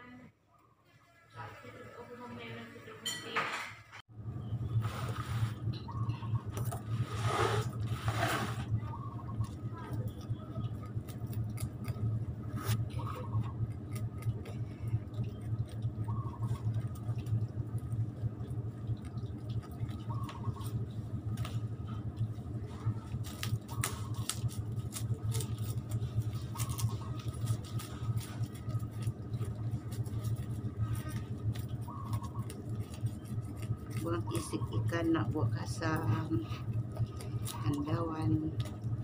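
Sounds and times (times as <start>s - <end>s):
steady low hum: 4.0s - 39.0s
knife scraping fish scales: 6.7s - 8.8s.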